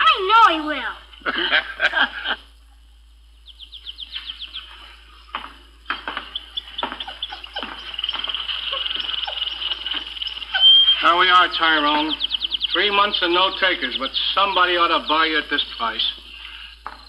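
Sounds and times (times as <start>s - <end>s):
caged birds chirping and trilling: 3.2s - 17.0s.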